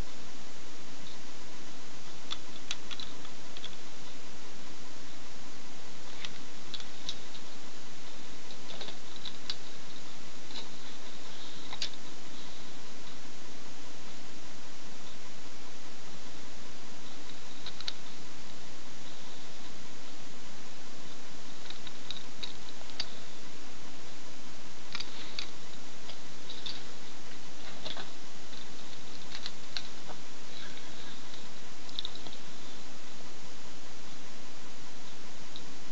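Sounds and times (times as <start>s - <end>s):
steady hiss: 0.0s - 35.9s.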